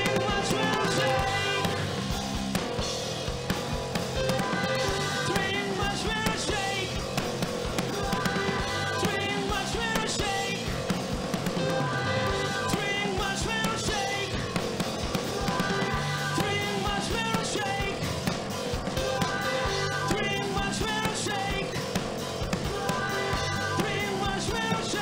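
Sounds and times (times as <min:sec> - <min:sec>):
man singing into a microphone: 0:00.0 - 0:01.8, 0:04.9 - 0:07.0, 0:08.4 - 0:10.7, 0:12.5 - 0:14.4, 0:15.5 - 0:18.0, 0:19.6 - 0:21.8, 0:23.2 - 0:25.0
drum kit: 0:00.0 - 0:25.0
electric bass: 0:00.0 - 0:25.0
keyboards: 0:00.0 - 0:25.0.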